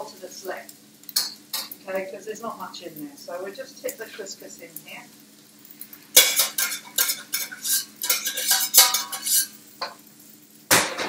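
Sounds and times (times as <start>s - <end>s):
metal utensil scraping pans: 6.2s - 10.0s.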